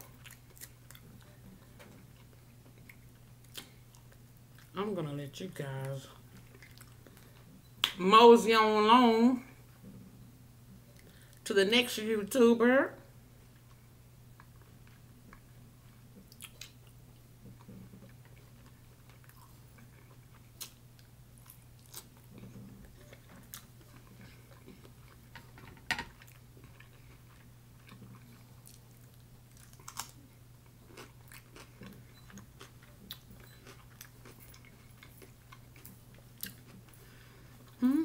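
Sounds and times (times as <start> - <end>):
person chewing crunchy food: 0.0 - 4.8, 6.3 - 7.5, 16.3 - 25.3, 26.2 - 37.8.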